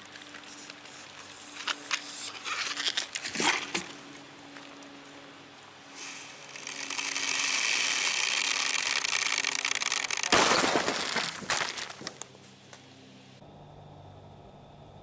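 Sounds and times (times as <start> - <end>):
steady hiss: 0.0 - 2.6, 5.8 - 10.4
bottle bursting with loud blast: 10.3 - 11.3.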